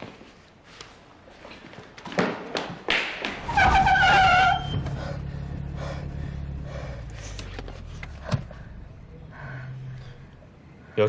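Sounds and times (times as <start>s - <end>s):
tyres squealing while braking: 3.4s - 5.2s
engine rumbling low: 3.8s - 11.0s.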